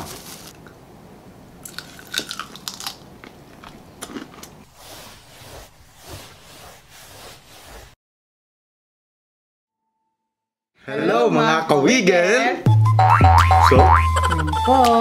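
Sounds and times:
soft chewing: 0:01.6 - 0:04.6
crunchy bites into fried chicken: 0:01.7 - 0:03.1.

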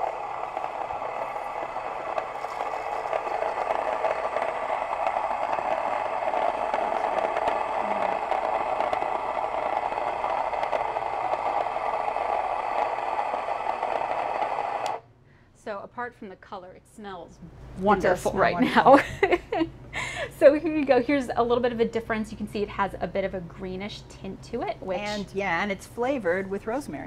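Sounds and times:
electric grain mill grinding: 0:00.0 - 0:15.0.

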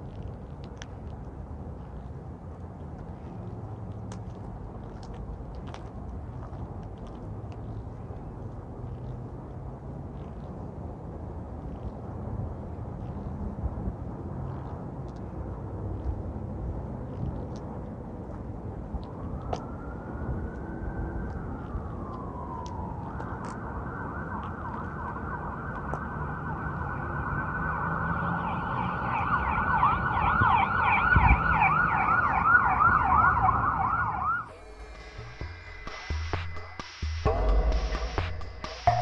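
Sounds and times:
background street noise: 0:00.0 - 0:39.0
emergency vehicle siren: 0:19.0 - 0:39.0.

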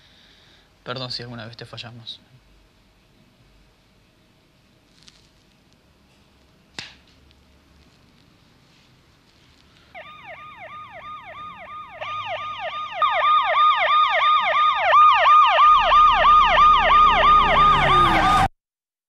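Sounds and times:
police siren yelping: 0:09.9 - 0:18.5.

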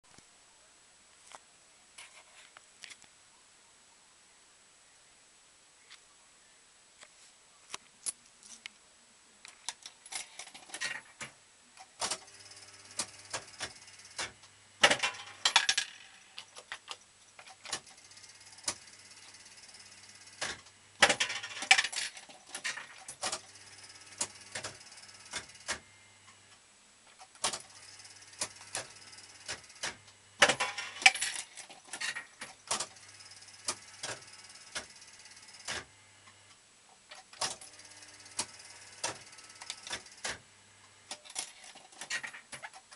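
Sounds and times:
fruit machine clicks and rattles: 0:11.9 - 0:19.5, 0:20.1 - 0:25.8, 0:27.3 - 0:35.8.

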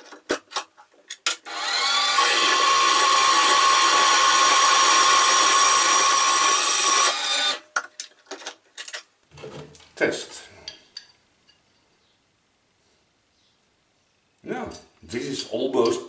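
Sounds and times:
bandsaw motor and blade whine: 0:01.4 - 0:07.6.

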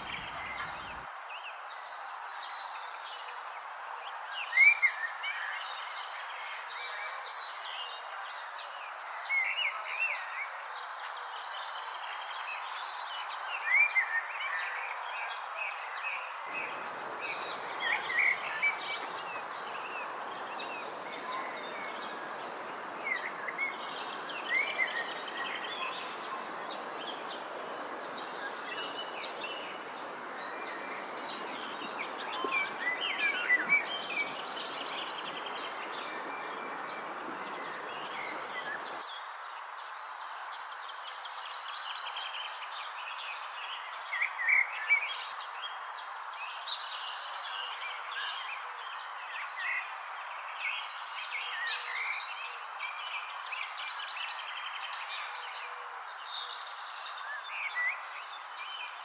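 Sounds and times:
insect trill: 0:15.5 - 0:40.2.

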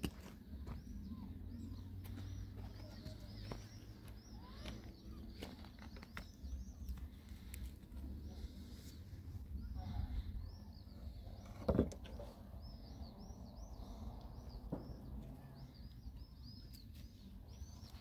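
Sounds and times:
bird chirping: 0:00.2 - 0:18.0
steady low rumble: 0:06.2 - 0:11.4.

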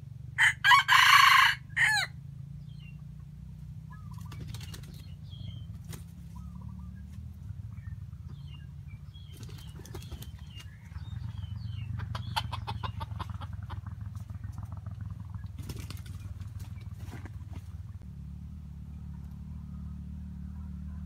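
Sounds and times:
small birds chirping: 0:02.5 - 0:18.1
rapid fluttering ticks: 0:04.1 - 0:06.4, 0:12.9 - 0:18.0
steady low rumble: 0:05.0 - 0:21.0.

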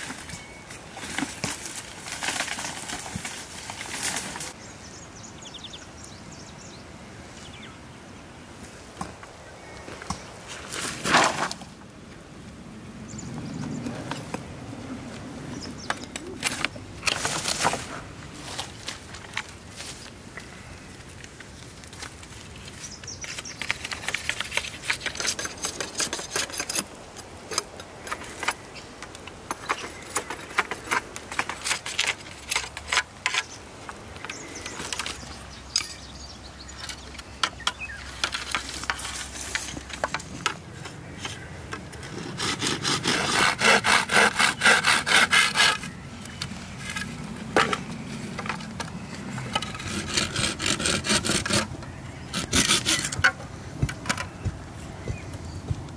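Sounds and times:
knife scraping reed stalks: 0:23.2 - 0:28.6, 0:29.4 - 0:33.7, 0:38.1 - 0:53.4
knife sawing reed stalk: 0:42.2 - 0:45.9, 0:49.6 - 0:51.7, 0:52.3 - 0:53.3.

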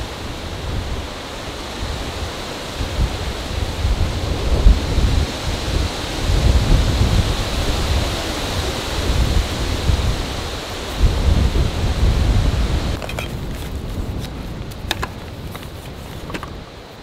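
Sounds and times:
strong wind gusting through trees: 0:00.0 - 0:17.0
wind buffeting microphone: 0:00.0 - 0:17.0
handling soft cooler bag: 0:13.0 - 0:16.6.

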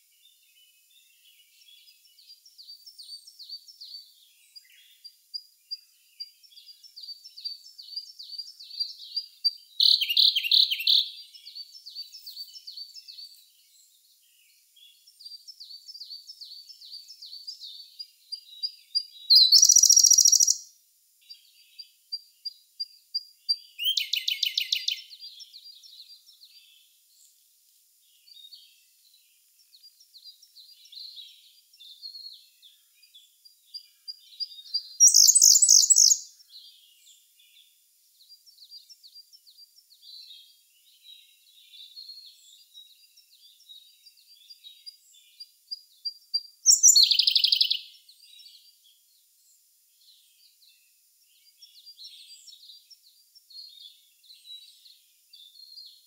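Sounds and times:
bird singing trilled phrases: 0:00.0 - 0:27.4, 0:28.0 - 0:56.0
faint bird chirps: 0:00.0 - 0:56.0
soft ticking bird notes: 0:01.3 - 0:13.7, 0:14.3 - 0:26.7, 0:27.6 - 0:36.8.

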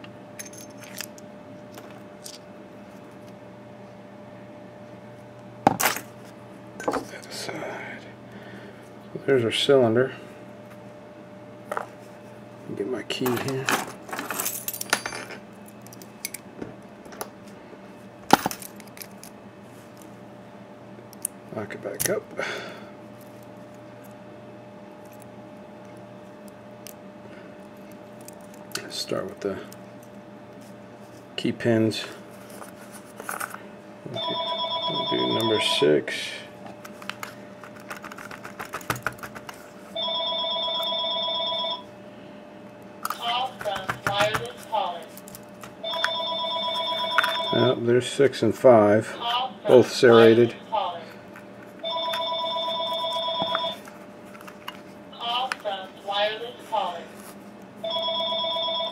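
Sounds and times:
telephone ringing: 0:34.1 - 0:36.0, 0:39.9 - 0:41.9, 0:45.8 - 0:47.8, 0:51.8 - 0:53.8, 0:57.8 - 0:58.9.

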